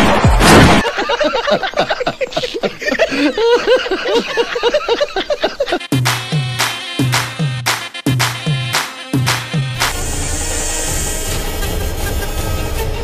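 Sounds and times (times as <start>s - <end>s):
men laughing heartily: 0.8s - 5.9s
music with repeating bass beat: 5.8s - 10.5s
loud burst of noise: 9.8s - 13.0s.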